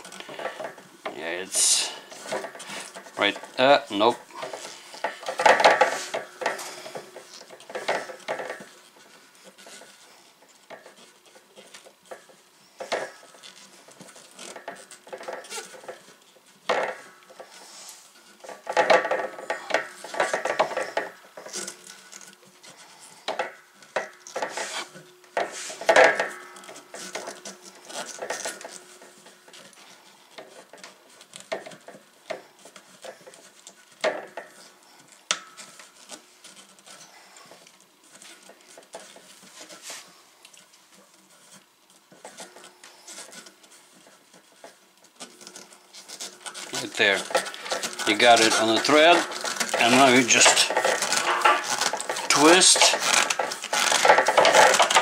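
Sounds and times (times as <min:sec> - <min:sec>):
pipe clattering against sheet metal: 0:00.0 - 0:17.6, 0:18.2 - 0:34.7, 0:42.2 - 0:55.0
metallic ringing: 0:47.2 - 0:54.0.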